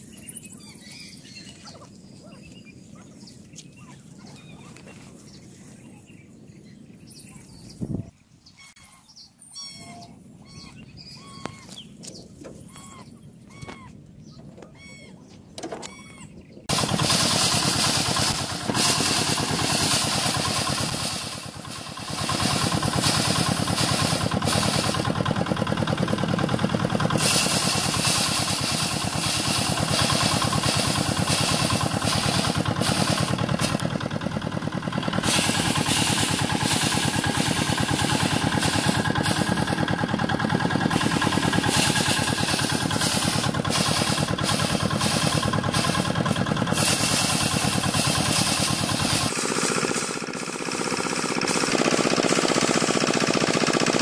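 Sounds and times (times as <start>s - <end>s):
thresher drum rattling: 16.7s - 54.0s.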